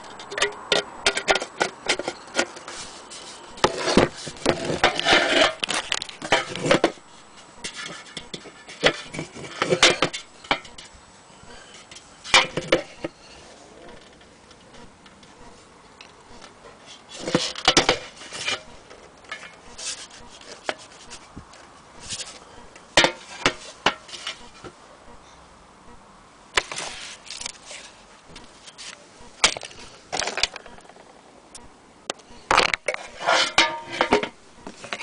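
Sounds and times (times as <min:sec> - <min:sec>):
rubbing and scraping on wood: 0:00.0 - 0:10.9, 0:16.3 - 0:24.8, 0:26.6 - 0:30.9, 0:32.5 - 0:35.0.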